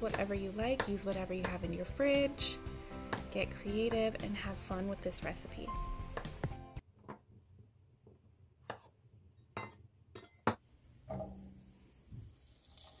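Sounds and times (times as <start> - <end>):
knife chopping on wooden board: 0.0 - 1.7, 3.1 - 3.3, 6.1 - 6.6.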